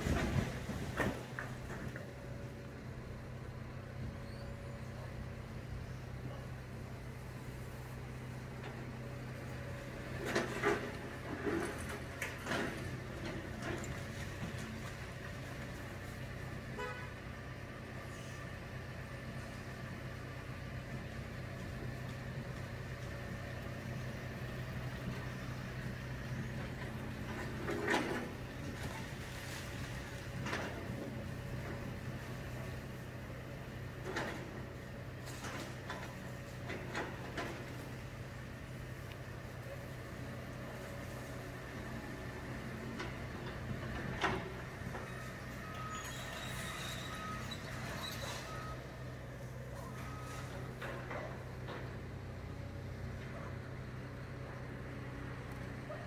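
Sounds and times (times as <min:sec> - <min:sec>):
rubble clunking and scraping: 0:00.0 - 0:02.2, 0:10.0 - 0:15.6
diesel engine running: 0:00.0 - 0:56.0
vehicle horn beep: 0:16.7 - 0:17.2.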